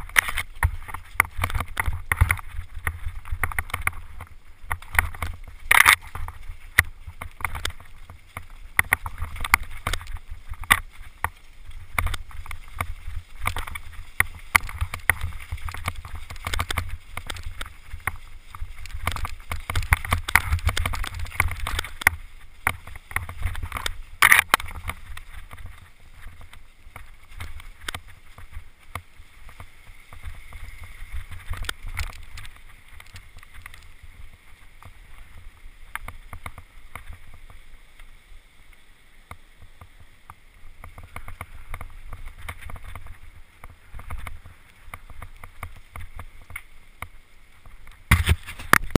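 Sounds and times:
bike rattling over bumps: 0:00.0 - 0:37.8, 0:39.3 - 0:49.0
bike tyres rolling over leaves: 0:00.0 - 0:49.0.

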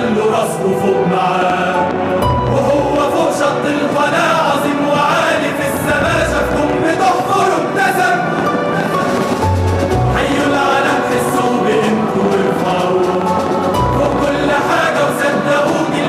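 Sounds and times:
choir singing: 0:00.0 - 0:16.0
instrumental backing: 0:01.1 - 0:16.0
deep bass notes: 0:01.8 - 0:03.3, 0:08.4 - 0:14.7.

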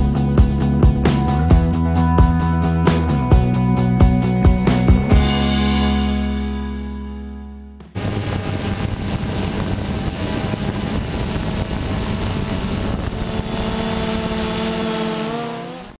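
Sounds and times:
sustained music chord: 0:05.1 - 0:08.8
drone motors whirring: 0:08.0 - 0:16.0
wind rush on microphone: 0:08.0 - 0:16.0.

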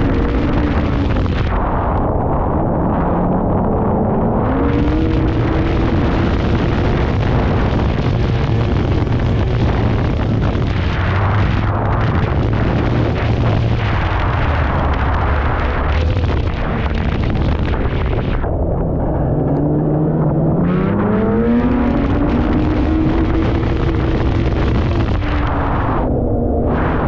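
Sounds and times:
loud rushing noise: 0:00.0 - 0:27.0
snowmobile engine running hard: 0:00.0 - 0:27.0.

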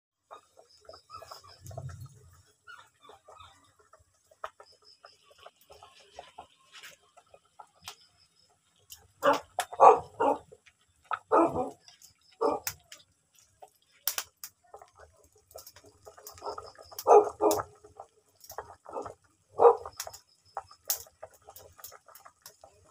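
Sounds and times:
dog barking: 0:09.2 - 0:10.5, 0:11.2 - 0:11.8, 0:12.4 - 0:12.7, 0:16.4 - 0:17.7, 0:18.9 - 0:19.9.

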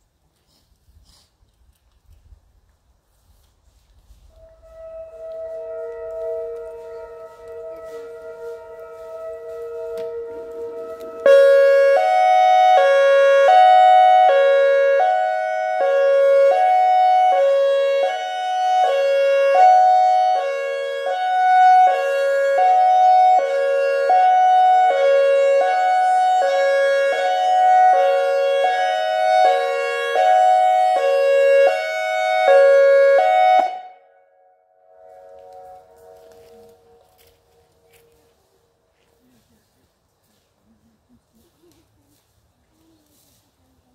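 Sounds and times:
faint steady siren tone: 0:04.1 - 0:39.0
hi-lo warning siren: 0:04.2 - 0:38.9.

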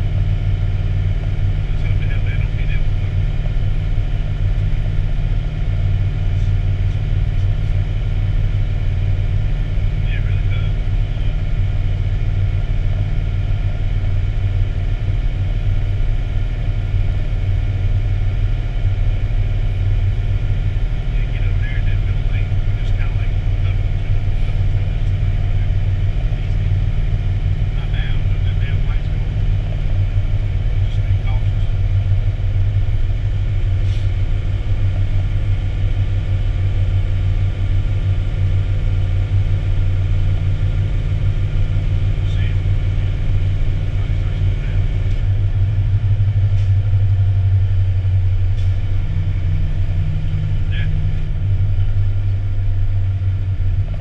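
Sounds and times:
deep engine drone: 0:00.0 - 0:54.0
road noise: 0:00.0 - 0:54.0.

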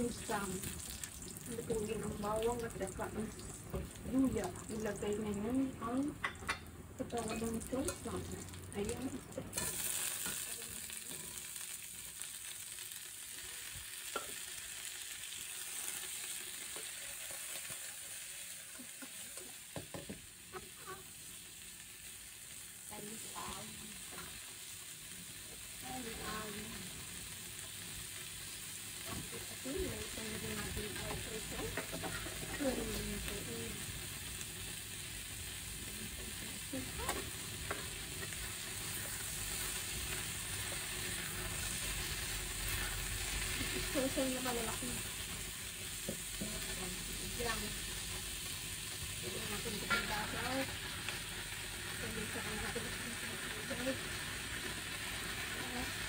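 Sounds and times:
vegetables sizzling in a wok: 0:00.0 - 0:56.0
spatula scraping and knocking pan: 0:31.0 - 0:32.7, 0:49.7 - 0:50.7.

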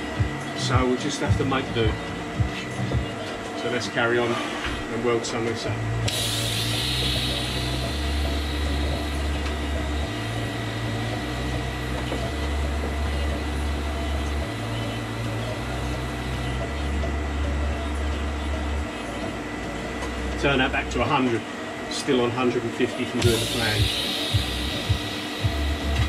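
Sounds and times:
intermittent low hum: 0:00.0 - 0:26.0
welding equipment hum and hiss: 0:00.0 - 0:26.0
thin high whine: 0:06.0 - 0:19.4, 0:20.1 - 0:26.0.

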